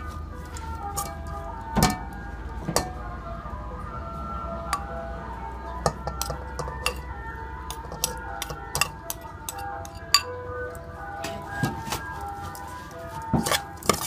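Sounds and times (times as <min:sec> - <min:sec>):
background music: 0:00.0 - 0:14.0
metal spoon clinking on bowl: 0:05.8 - 0:07.0, 0:07.7 - 0:10.3.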